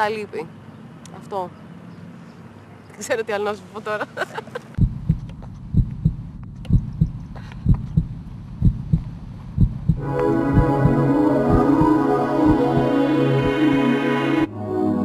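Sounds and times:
heartbeat thumps: 0:04.8 - 0:13.9
music: 0:09.9 - 0:15.0.

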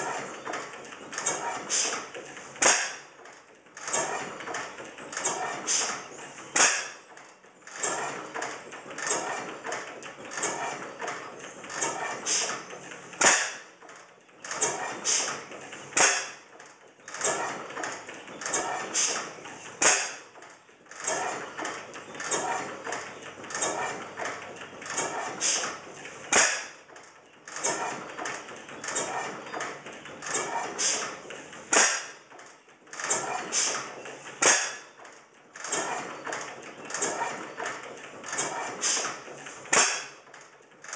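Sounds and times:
clattering valve gear: 0:00.0 - 0:40.9.

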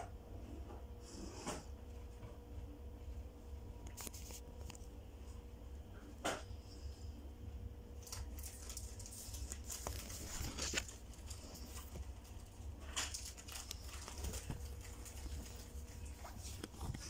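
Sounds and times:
paper rustling and crinkling: 0:03.9 - 0:04.9, 0:08.0 - 0:17.0.

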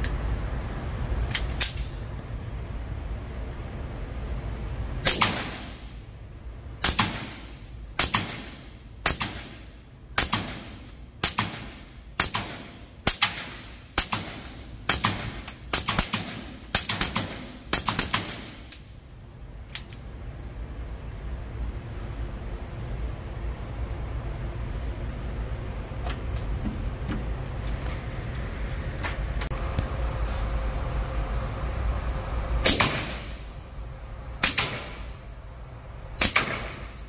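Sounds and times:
suppressed pistol shots: 0:05.0 - 0:05.8, 0:06.8 - 0:09.6, 0:10.2 - 0:18.8, 0:32.6 - 0:33.4, 0:34.4 - 0:35.1, 0:36.2 - 0:37.0.

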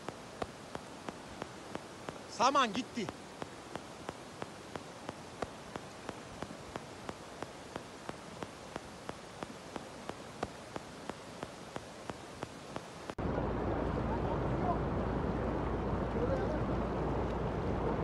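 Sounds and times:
regular ticking: 0:00.0 - 0:13.2
floodwater rushing: 0:00.0 - 0:18.0.

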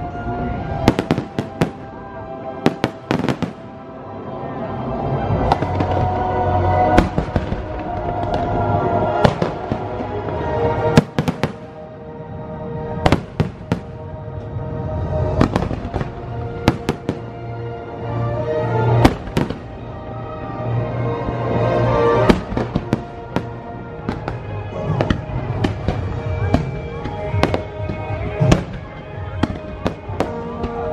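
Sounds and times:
music: 0:00.0 - 0:30.9
fireworks bangs: 0:00.7 - 0:03.8, 0:05.4 - 0:11.9, 0:13.0 - 0:14.1, 0:15.2 - 0:17.4, 0:18.9 - 0:19.8, 0:22.1 - 0:30.9.

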